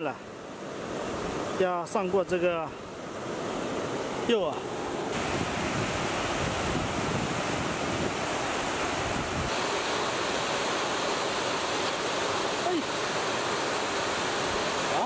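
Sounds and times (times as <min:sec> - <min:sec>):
river water rushing over weir: 0:00.0 - 0:15.0
wind rumbling on microphone: 0:05.0 - 0:09.6.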